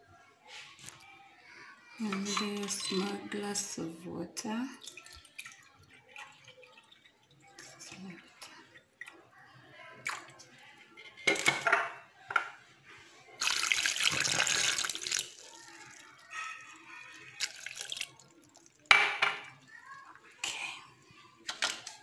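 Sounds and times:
water pouring into glass jar: 0:02.0 - 0:03.8, 0:04.7 - 0:09.1, 0:13.4 - 0:20.4.

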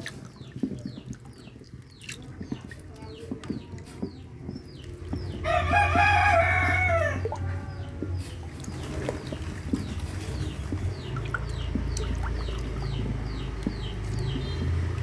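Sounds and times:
turtles splashing in water: 0:00.0 - 0:15.0
rooster crowing: 0:05.4 - 0:07.3.

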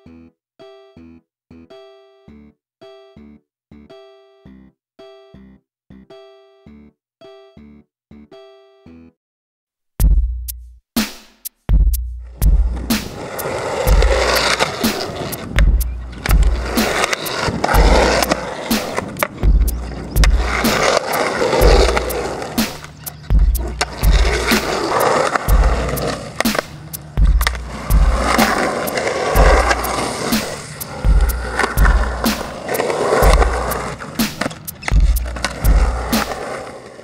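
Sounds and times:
music with heavy bass beat: 0:10.0 - 0:36.5
skateboard wheels rolling on concrete: 0:12.3 - 0:37.0
skateboard clacks: 0:12.4 - 0:37.0.

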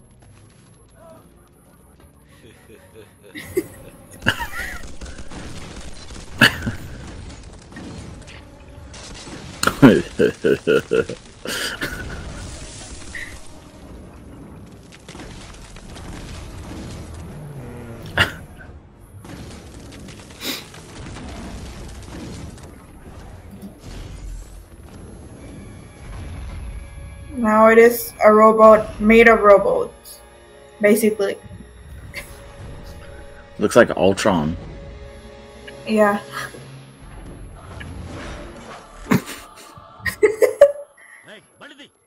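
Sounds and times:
action film sound effects: 0:00.0 - 0:42.0
sharp crashing impacts: 0:04.2 - 0:18.6
loud sharp burst: 0:04.2 - 0:27.1.

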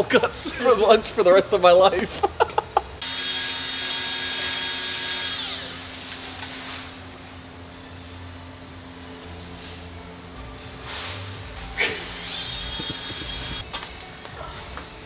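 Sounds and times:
power tool motor whirring: 0:03.0 - 0:06.3, 0:12.0 - 0:13.6.

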